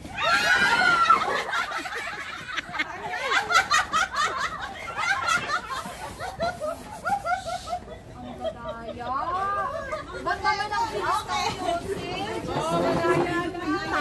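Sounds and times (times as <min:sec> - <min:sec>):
group of people laughing: 0:00.2 - 0:10.5.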